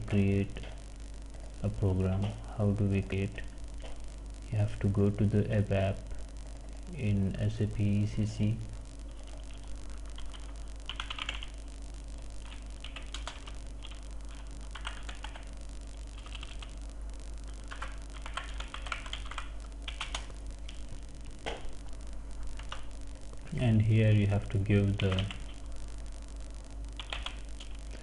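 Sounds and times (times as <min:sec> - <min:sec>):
keyboard typing: 0:09.1 - 0:11.5, 0:12.4 - 0:15.5, 0:16.1 - 0:16.8, 0:17.5 - 0:20.4, 0:22.6 - 0:22.9, 0:25.0 - 0:25.6, 0:27.0 - 0:27.8.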